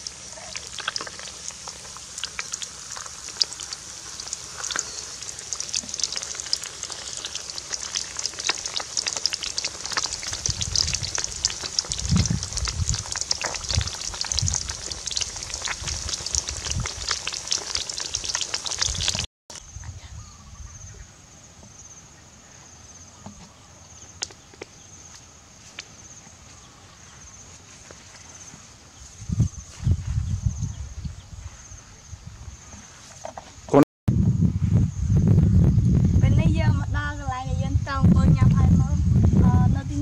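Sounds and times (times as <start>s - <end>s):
fish frying in hot oil: 0.0s - 19.3s.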